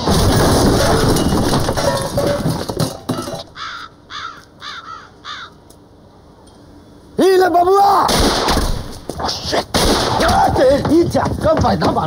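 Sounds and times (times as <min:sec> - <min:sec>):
bird calling: 0:03.2 - 0:05.8.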